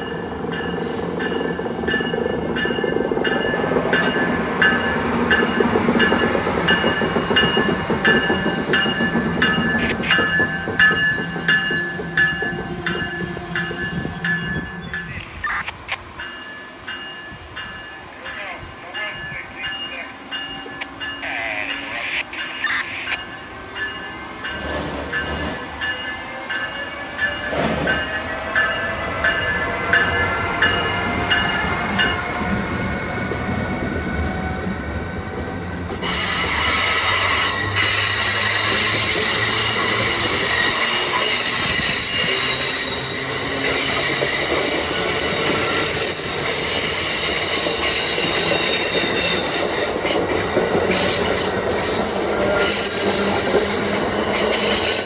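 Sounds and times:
electric locomotive whine: 0:00.0 - 0:55.0
train coaches rumbling: 0:00.0 - 0:55.0
wheel squeal: 0:36.0 - 0:49.8, 0:50.9 - 0:55.0.

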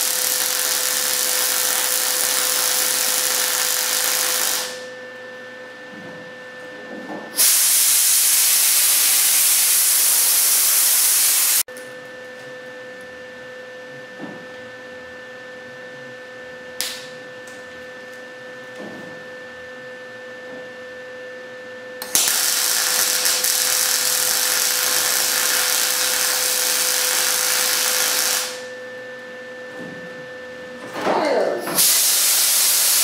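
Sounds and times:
welder arc crackling hiss: 0:00.0 - 0:04.9, 0:07.4 - 0:11.6, 0:22.0 - 0:28.7, 0:31.8 - 0:33.0.

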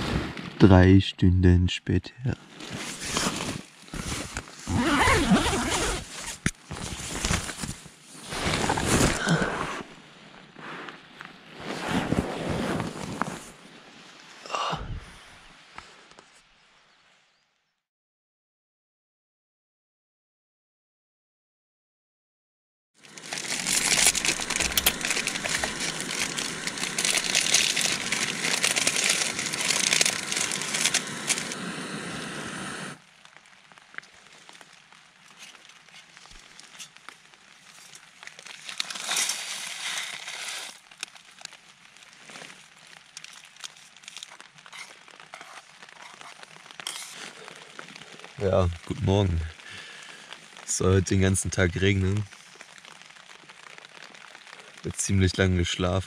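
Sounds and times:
tent zipper pulled open: 0:00.0 - 0:00.6, 0:02.5 - 0:10.0, 0:11.6 - 0:13.6, 0:23.2 - 0:33.0, 0:38.6 - 0:40.9, 0:44.1 - 0:47.6
nylon fabric rustling: 0:02.5 - 0:10.4, 0:11.0 - 0:14.2, 0:23.1 - 0:31.6, 0:35.4 - 0:47.8.

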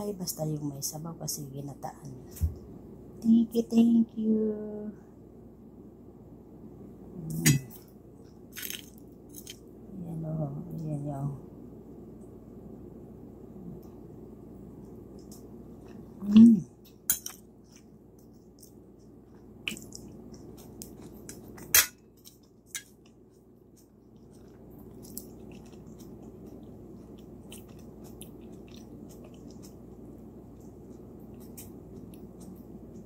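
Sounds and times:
steady low hum: 0:00.0 - 0:33.0
chewing and mouth sounds: 0:15.2 - 0:33.0.

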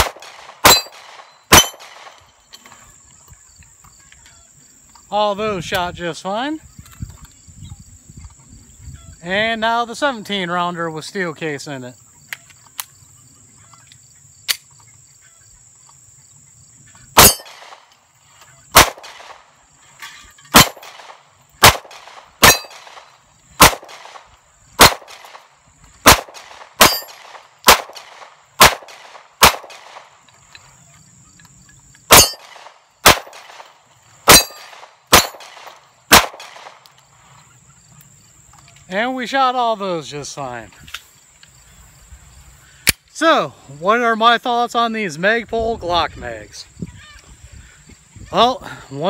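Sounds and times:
pistol shots: 0:00.0 - 0:02.2, 0:17.2 - 0:17.9, 0:18.7 - 0:19.5, 0:20.5 - 0:30.1, 0:32.1 - 0:36.8
insects whining: 0:00.0 - 0:49.0
hits ringing on steel plates: 0:00.7 - 0:01.8, 0:17.2 - 0:17.5, 0:22.4 - 0:22.8, 0:32.1 - 0:32.4, 0:34.3 - 0:35.3.

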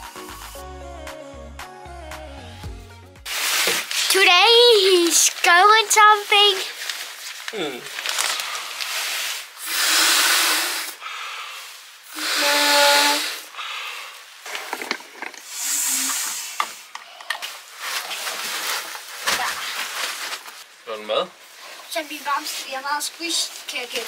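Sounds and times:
fabric rustling: 0:03.3 - 0:09.6, 0:17.5 - 0:20.7
air rushing through a valve: 0:08.9 - 0:14.2, 0:15.4 - 0:16.9.

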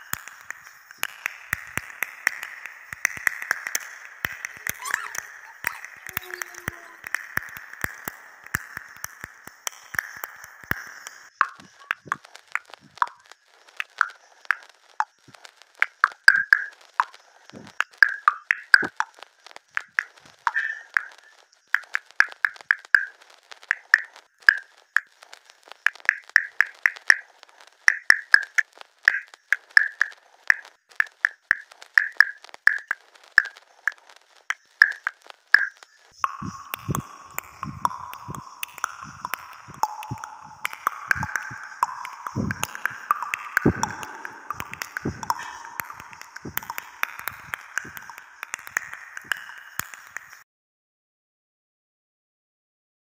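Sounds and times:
background hiss: 0:00.0 - 0:50.4
plucked drip-like music notes: 0:36.2 - 0:50.4.

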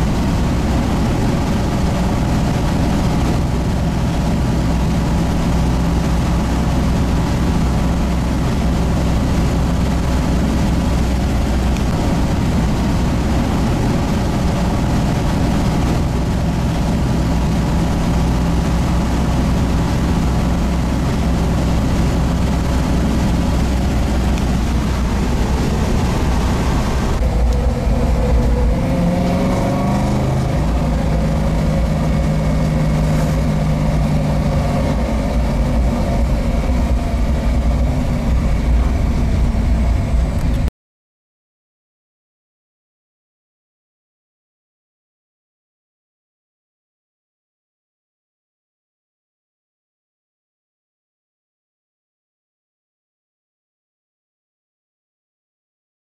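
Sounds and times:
car engine at high revs: 0:00.0 - 0:40.7.

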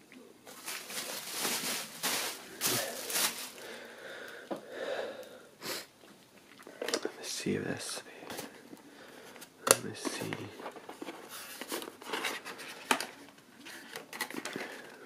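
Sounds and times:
bubble wrap rustling and crinkling: 0:00.4 - 0:03.9, 0:10.0 - 0:15.0.

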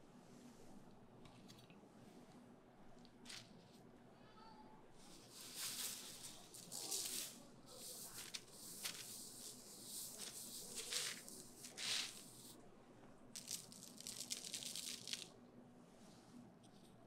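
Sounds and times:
paper and glove crinkling: 0:05.0 - 0:12.6, 0:13.4 - 0:15.3
salt sprinkling from plastic bag: 0:05.1 - 0:12.6, 0:13.4 - 0:15.3
pepper shaker rattling: 0:05.3 - 0:12.5, 0:13.4 - 0:15.3.

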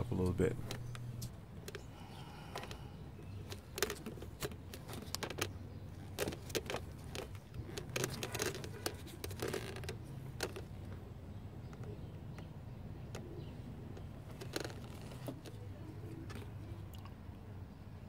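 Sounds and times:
low steady hum: 0:00.0 - 0:18.0
connector clicks and rattles: 0:02.5 - 0:10.8.

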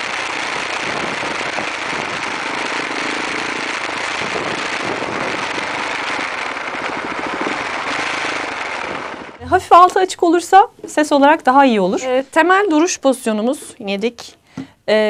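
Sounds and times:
wind and road noise: 0:00.0 - 0:09.8.

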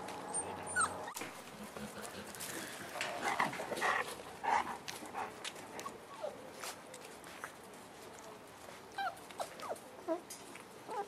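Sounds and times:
puppies whimpering and yipping: 0:00.2 - 0:01.3.

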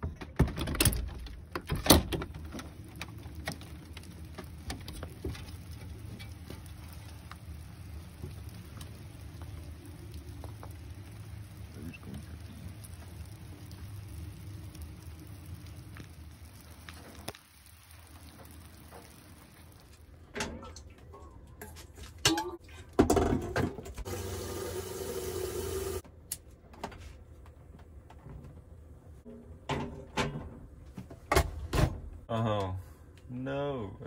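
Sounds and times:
tap water running into kettle: 0:02.2 - 0:21.0, 0:24.0 - 0:26.0.

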